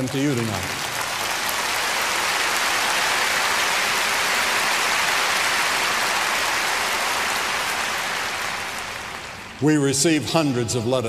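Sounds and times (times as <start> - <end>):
crowd applauding: 0.0 - 9.7.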